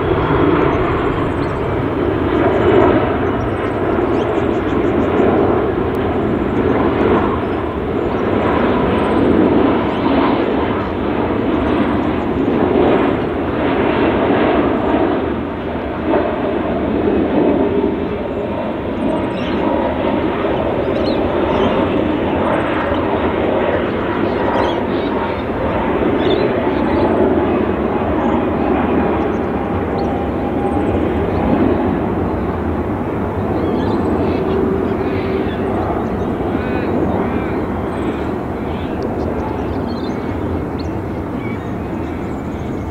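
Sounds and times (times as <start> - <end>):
faint whine sinking in pitch: 0.0 - 10.8, 20.9 - 42.9
jet airliner rumble: 0.0 - 42.9.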